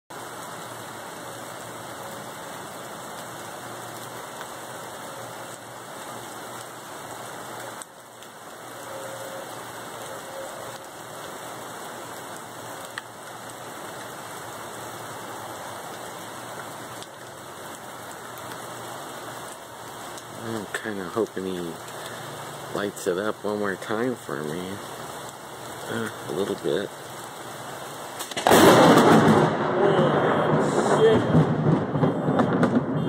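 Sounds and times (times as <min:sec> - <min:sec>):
steady rain falling: 0:00.1 - 0:33.0.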